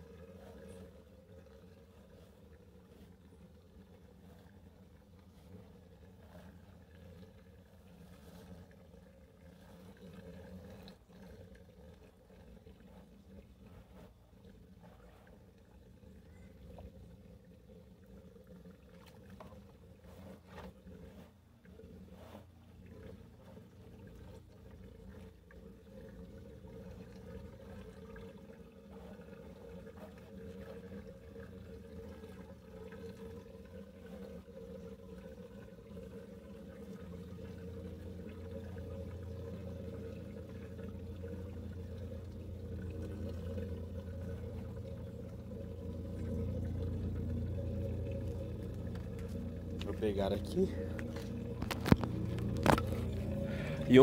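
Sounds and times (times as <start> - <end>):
faint low hum: 0.0 - 54.0
water trickling and sloshing: 0.0 - 54.0
wet handling sounds: 46.0 - 54.0.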